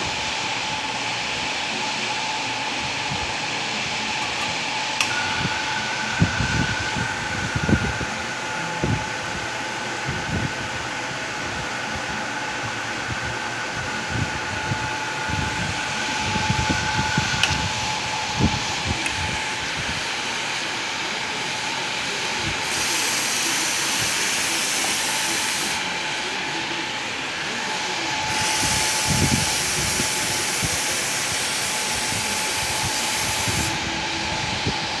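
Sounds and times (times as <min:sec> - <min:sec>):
espresso machine hissing: 0:13.6 - 0:35.0
steam wand hissing: 0:14.8 - 0:35.0.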